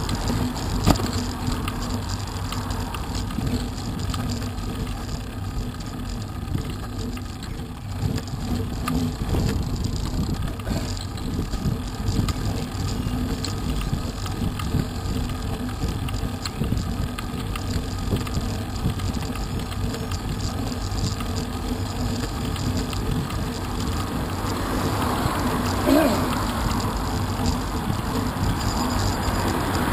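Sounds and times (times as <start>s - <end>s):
bicycle tyres rolling on tarmac: 0.0s - 29.9s
small rattles: 0.0s - 29.9s.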